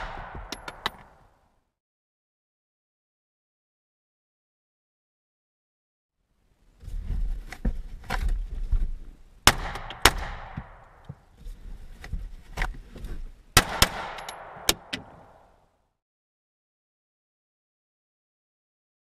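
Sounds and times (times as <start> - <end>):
pistol shots: 0.0 - 0.9, 9.5 - 11.0, 13.6 - 15.2.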